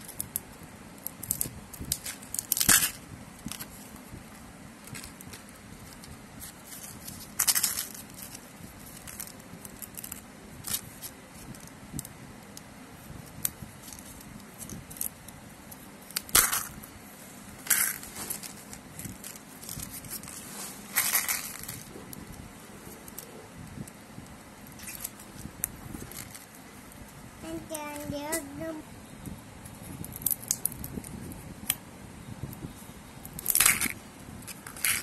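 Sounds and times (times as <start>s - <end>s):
wrapper crinkling and tearing: 17.6s - 21.9s
wrapper rustling: 17.6s - 22.2s.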